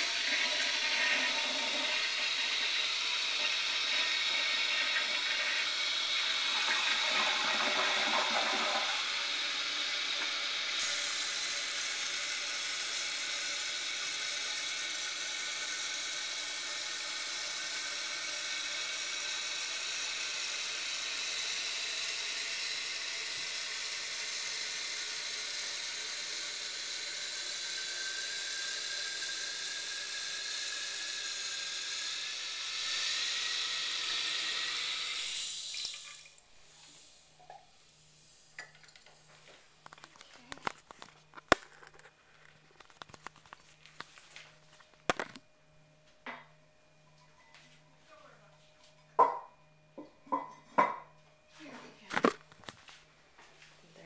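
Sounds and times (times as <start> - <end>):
toilet tank refilling hiss: 0.0 - 39.8.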